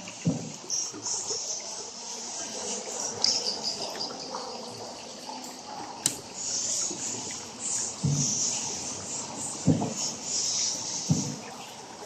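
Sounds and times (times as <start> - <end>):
water splashing and trickling: 0.0 - 12.0
insects chirping: 0.7 - 5.0.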